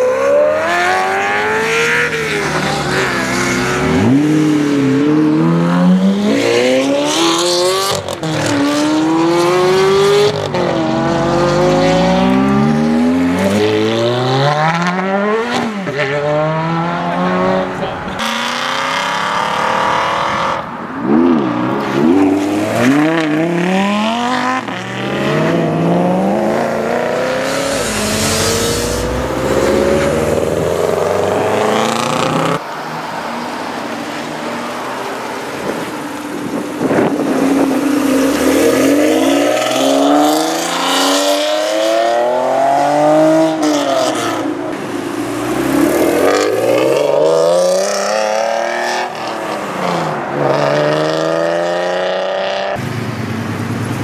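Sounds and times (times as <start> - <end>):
sports car engine accelerating: 21.0 - 32.6.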